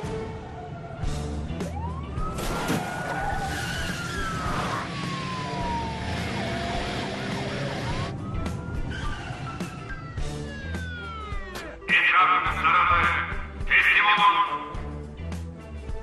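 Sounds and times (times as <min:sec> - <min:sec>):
police siren wailing: 0:00.0 - 0:13.1.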